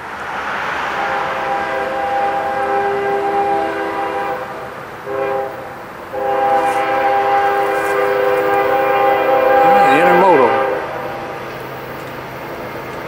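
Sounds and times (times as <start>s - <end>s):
locomotive air horn blasts: 1.0s - 11.4s.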